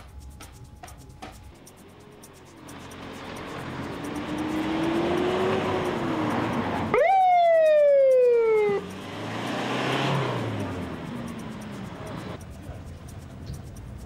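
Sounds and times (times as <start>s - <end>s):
vehicle passing: 1.0s - 14.0s
siren-like tone sliding down: 4.4s - 10.4s.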